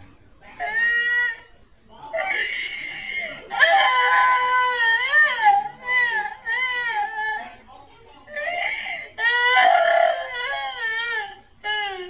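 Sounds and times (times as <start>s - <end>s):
pitched-up crying and sobbing: 2.1s - 7.6s, 8.3s - 12.0s.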